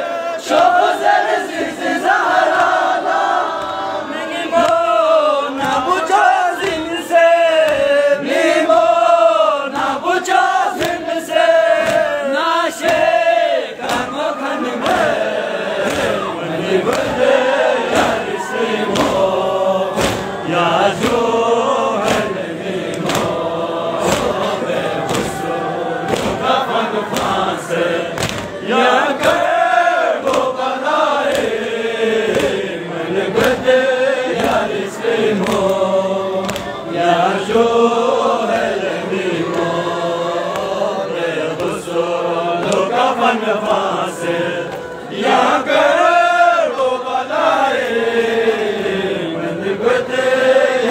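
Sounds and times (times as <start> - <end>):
crowd of men chanting: 0.0 - 50.9
hands striking chests: 19.9 - 21.2, 22.0 - 23.4, 26.1 - 26.5.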